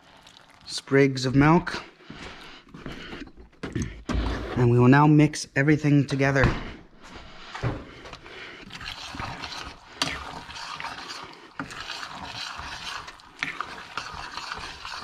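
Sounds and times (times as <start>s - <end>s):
spoon scraping a metal pot: 8.6s - 15.0s.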